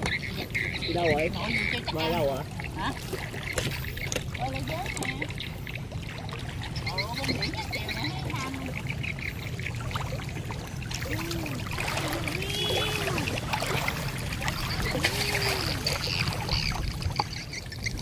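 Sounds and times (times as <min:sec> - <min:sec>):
water splashing and trickling: 0:00.0 - 0:18.0
chorus of pulsing high calls: 0:06.7 - 0:09.7.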